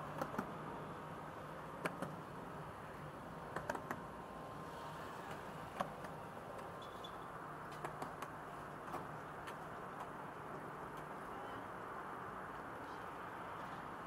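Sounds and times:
road traffic: 0.0s - 14.0s.

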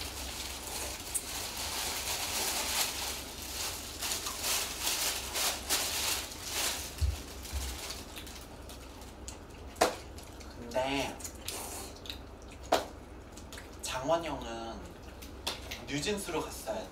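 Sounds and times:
plastic bag rustling: 0.0s - 9.2s
noodles slurped and chewed: 8.0s - 15.4s.

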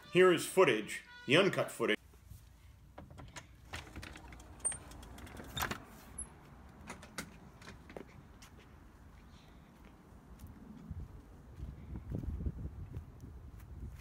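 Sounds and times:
footsteps on dry grass: 8.0s - 14.0s
wind rumble: 10.3s - 14.0s.

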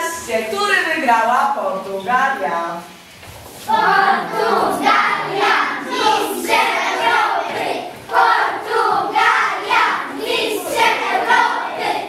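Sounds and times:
children chanting in unison: 3.7s - 12.0s.

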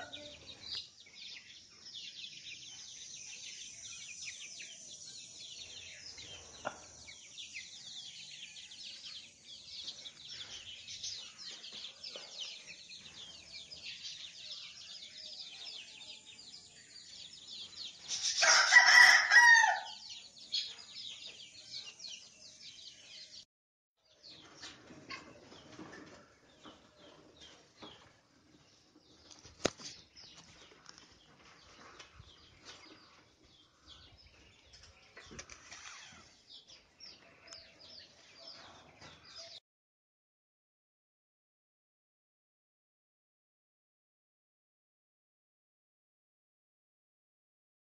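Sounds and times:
rooster crowing: 18.4s - 20.0s.

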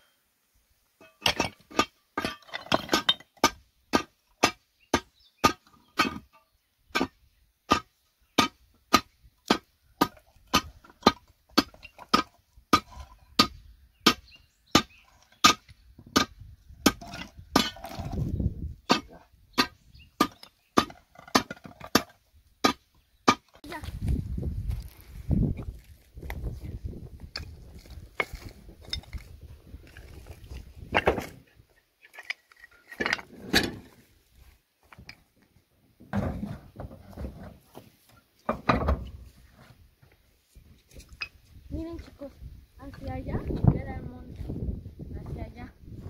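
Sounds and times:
steel bar striking stone: 1.0s - 6.3s, 6.9s - 18.0s, 18.9s - 23.4s.

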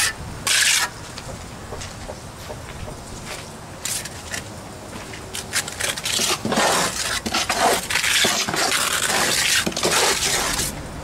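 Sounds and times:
trowel scraping cement: 0.0s - 1.0s, 5.3s - 10.8s.

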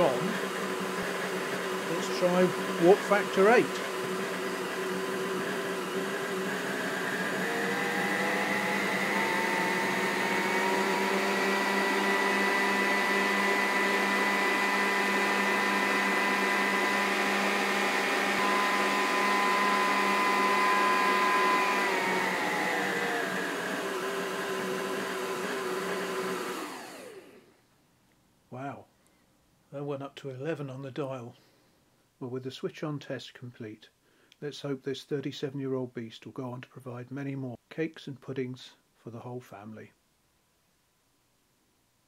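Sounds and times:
food mixer motor whine: 0.0s - 27.5s.

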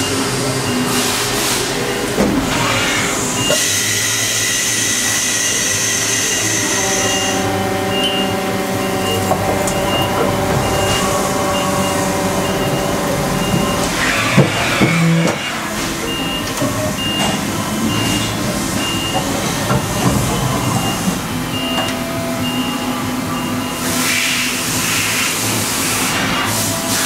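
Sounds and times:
machine shop din: 0.0s - 27.0s
pallet changer mechanism running: 0.0s - 27.0s
short high beep: 6.3s - 13.9s.

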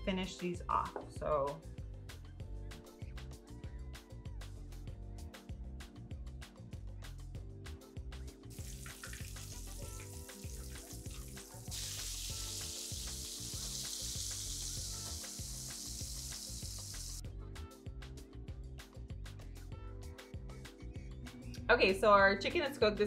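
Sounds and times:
background music with beat: 0.1s - 22.2s
chicken frying in oil: 8.5s - 17.2s.

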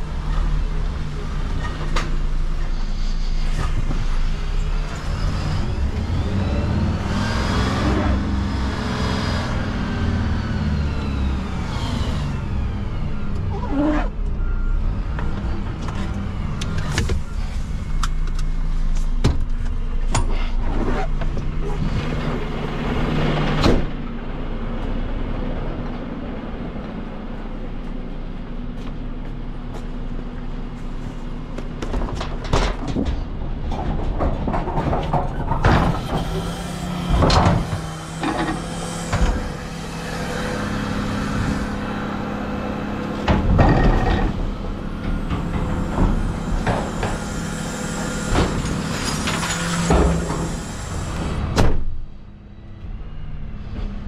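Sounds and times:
truck diesel engine running: 0.0s - 34.5s, 35.5s - 54.0s
metal clanks and knocks: 31.8s - 39.7s, 43.1s - 47.5s.

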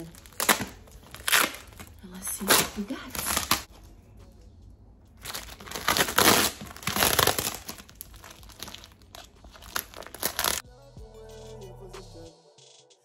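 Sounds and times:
plastic wrapping crinkling and tearing: 0.0s - 3.7s, 5.2s - 10.6s.

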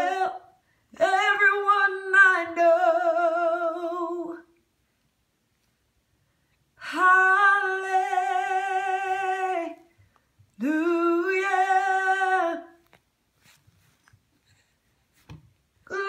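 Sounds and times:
woman singing without words: 0.0s - 4.6s, 6.8s - 12.9s.

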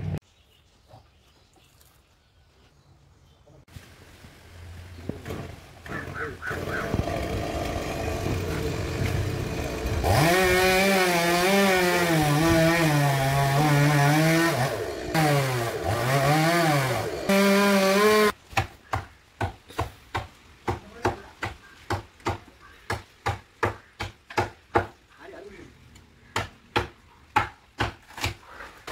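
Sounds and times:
chainsaw cutting wood: 5.2s - 18.4s.

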